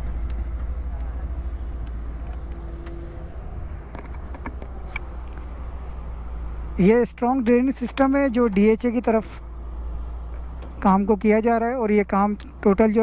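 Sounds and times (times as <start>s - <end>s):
faint clicks: 0.0s - 5.5s
heavy diesel machinery rumbling: 0.0s - 13.0s.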